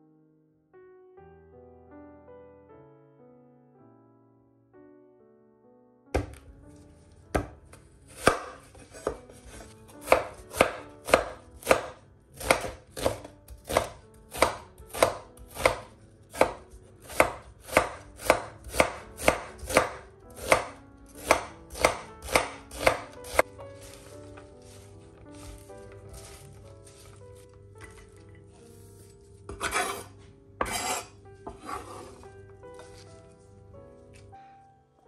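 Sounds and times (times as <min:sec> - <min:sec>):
knife chopping onion on board: 0:06.2 - 0:06.5, 0:07.3 - 0:27.9, 0:29.5 - 0:32.2.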